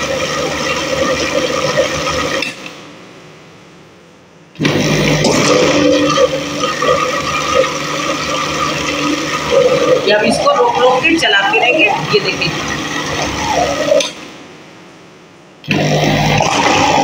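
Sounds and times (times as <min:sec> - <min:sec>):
electric blender churning: 0:00.0 - 0:02.4, 0:04.6 - 0:14.1, 0:15.7 - 0:17.0.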